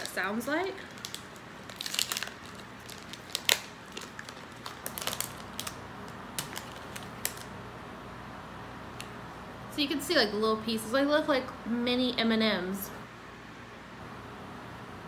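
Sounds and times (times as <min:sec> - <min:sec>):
wrapper crinkling and clicking: 0:00.8 - 0:07.5.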